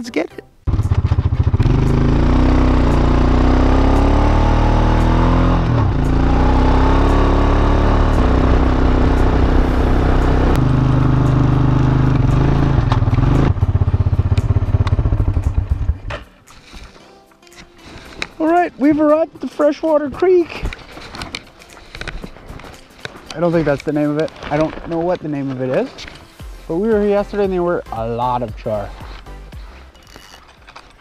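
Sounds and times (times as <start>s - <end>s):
quad bike engine: 0.7s - 16.2s.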